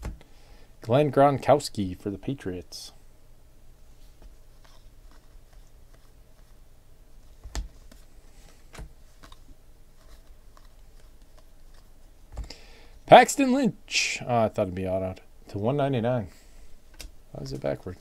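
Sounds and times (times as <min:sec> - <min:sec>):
cards sliding while shuffled: 0:04.0 - 0:06.6, 0:07.2 - 0:12.6.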